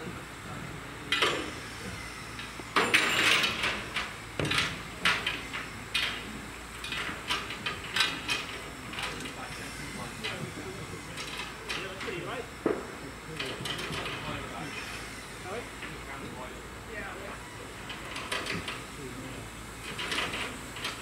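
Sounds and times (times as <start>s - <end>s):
metallic clanks and knocks: 2.4s - 9.4s.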